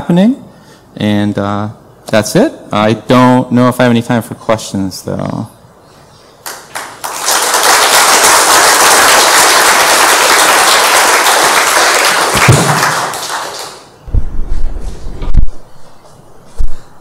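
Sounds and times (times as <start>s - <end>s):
audience applauding: 6.4s - 14.0s
low thumps: 14.1s - 15.7s.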